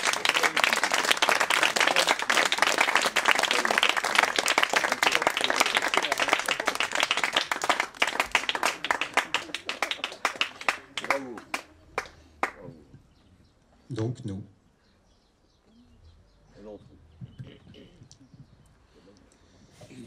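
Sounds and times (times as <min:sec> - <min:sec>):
audience clapping: 0:00.0 - 0:12.8.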